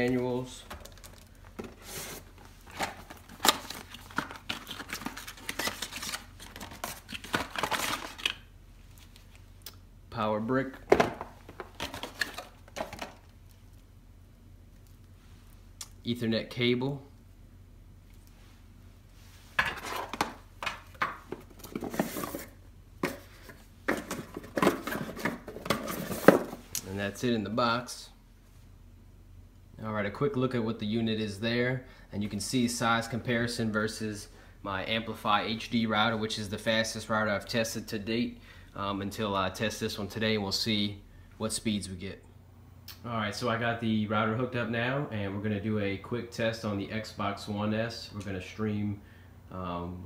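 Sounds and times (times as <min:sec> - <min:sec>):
cardboard rustling and scraping: 0:00.0 - 0:08.3, 0:19.4 - 0:26.6
cardboard sliding scrape: 0:01.7 - 0:02.3
cardboard clattering and rustling: 0:19.6 - 0:26.6.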